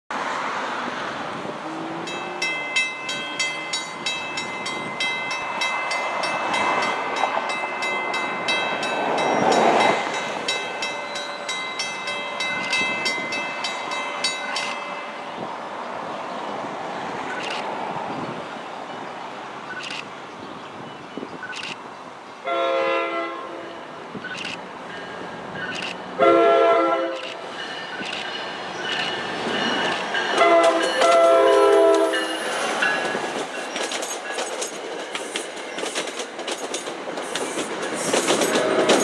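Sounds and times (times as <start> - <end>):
crossing warning bell ringing: 1.7 - 15.4, 23.4 - 34.6.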